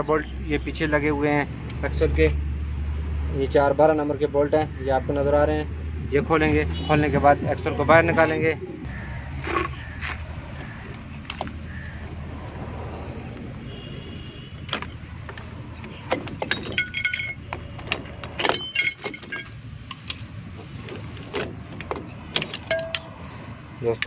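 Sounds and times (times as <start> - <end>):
metal clicks from brake springs: 14.6 - 23.3
ringing metal clinking: 16.4 - 17.5, 18.4 - 19.6, 22.5 - 23.2.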